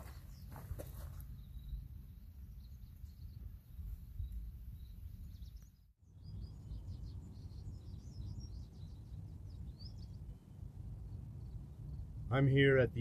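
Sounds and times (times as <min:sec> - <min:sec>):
small birds chirping: 0:00.0 - 0:13.0
wind rumble on microphone: 0:00.0 - 0:13.0.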